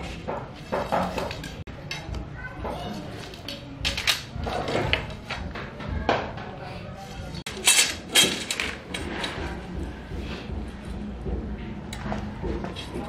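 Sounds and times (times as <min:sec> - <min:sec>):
steel tubes clinking and rattling: 0:07.5 - 0:09.6.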